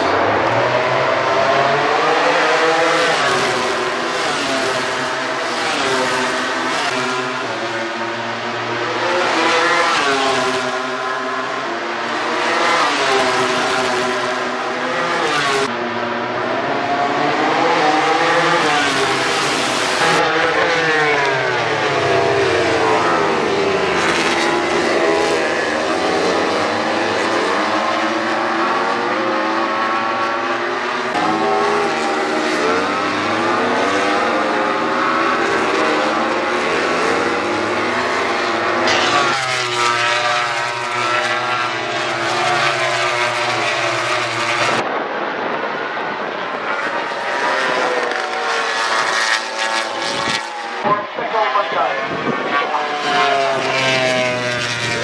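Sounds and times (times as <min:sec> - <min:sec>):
racing motorcycle engines: 0:00.0 - 0:55.0.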